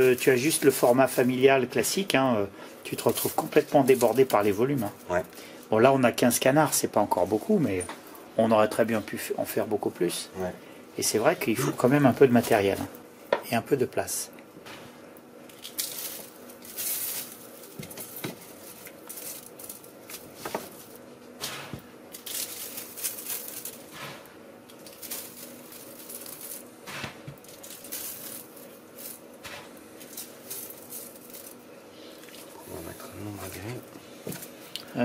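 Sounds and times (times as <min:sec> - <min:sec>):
salt grains crunching and scraping: 0:00.0 - 0:02.1, 0:02.9 - 0:05.3, 0:14.7 - 0:34.7.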